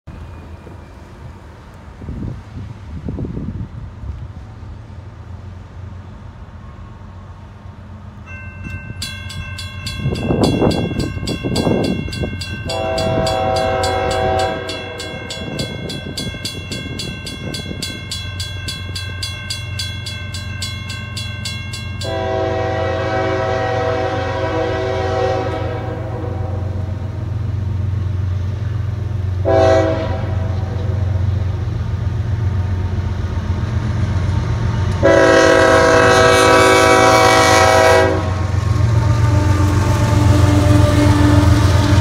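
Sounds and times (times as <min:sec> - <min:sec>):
mechanical crossing bell: 0:08.3 - 0:22.4
electronic crossing bell: 0:08.3 - 0:22.5
locomotive horn: 0:12.4 - 0:15.7, 0:22.0 - 0:27.0, 0:29.4 - 0:31.1, 0:35.0 - 0:42.0.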